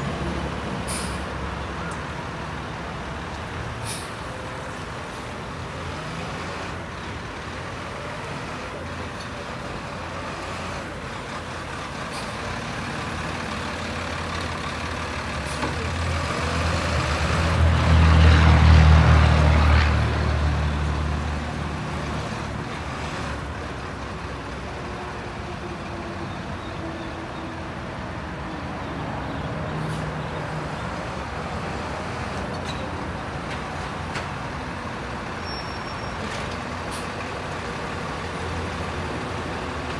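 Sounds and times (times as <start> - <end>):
garbage truck diesel engine passing: 0.0 - 27.3.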